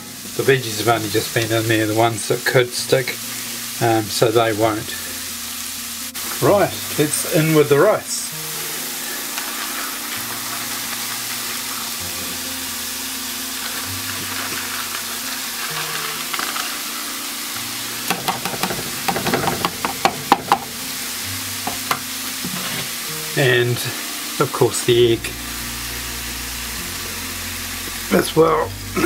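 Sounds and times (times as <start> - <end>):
food sizzling in a frying pan: 0.0 - 29.0
sharp taps and knocks: 18.1 - 20.7.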